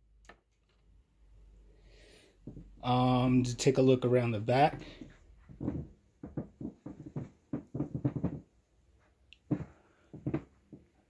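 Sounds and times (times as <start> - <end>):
soft handling thumps and knocks: 2.4 - 2.9, 4.5 - 11.0.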